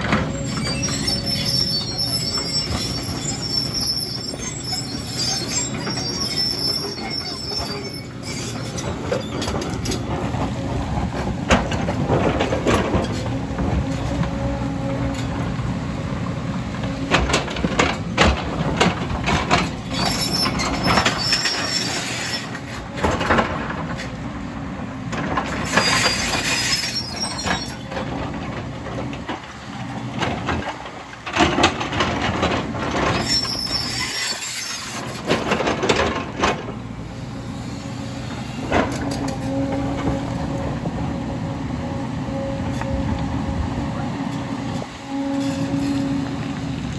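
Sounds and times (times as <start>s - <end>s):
diesel engine under load: 0.0s - 46.9s
high-pitched squeals: 0.3s - 10.0s.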